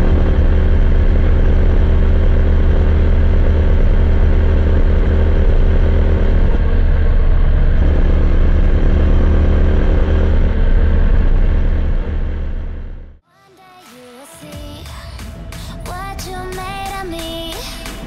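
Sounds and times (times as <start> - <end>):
motorcycle engine running: 0.0 - 13.2.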